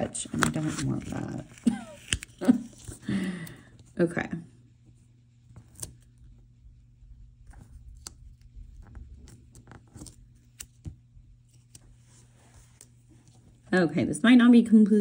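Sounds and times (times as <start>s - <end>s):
paper handling: 0.0s - 3.6s, 7.4s - 13.6s
scissors snipping paper: 0.4s - 2.9s.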